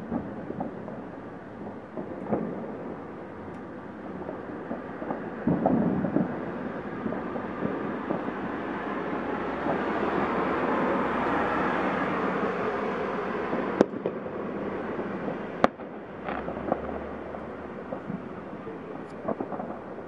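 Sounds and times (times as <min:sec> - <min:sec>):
firework bangs: 0:00.0 - 0:20.0
fireworks crackling: 0:00.0 - 0:20.0.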